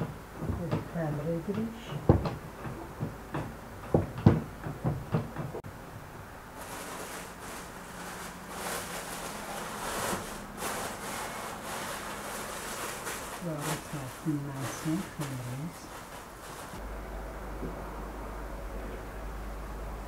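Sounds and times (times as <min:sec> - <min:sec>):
plastic bag crinkling: 0:06.6 - 0:16.8.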